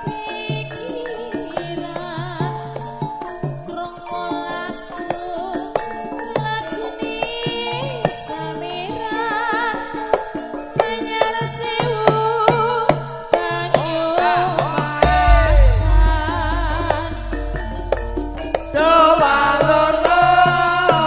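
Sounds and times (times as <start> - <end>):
gamelan metallophones and gongs: 15.0 - 21.0.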